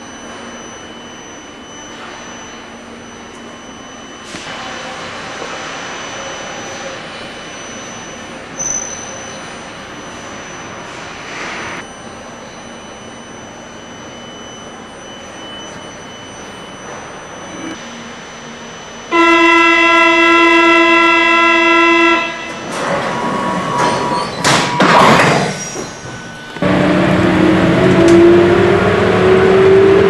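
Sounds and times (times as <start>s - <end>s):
door warning buzzer: 11.8s - 30.0s
train rumbling and clatter: 22.4s - 30.0s.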